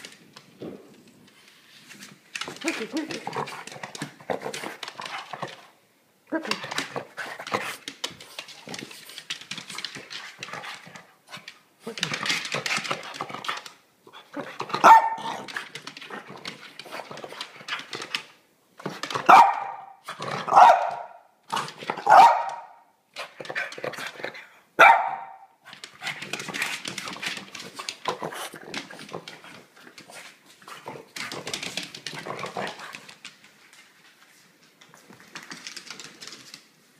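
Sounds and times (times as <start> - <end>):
dog barking: 14.8 - 15.4, 19.3 - 21.2, 22.0 - 22.8, 24.8 - 25.5.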